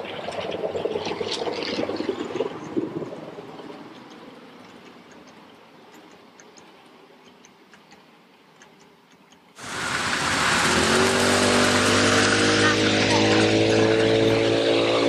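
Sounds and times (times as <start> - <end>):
miniature train running on track: 0.0 - 15.0
faint light ticking: 2.6 - 9.6
train rushing past: 9.6 - 15.0.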